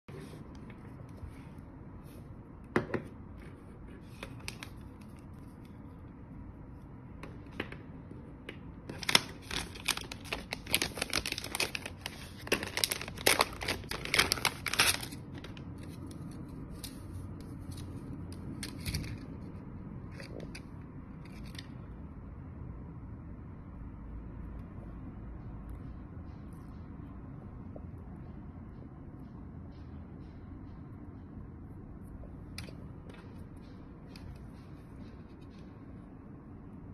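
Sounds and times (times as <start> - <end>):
plastic bag crinkling: 8.9 - 15.7.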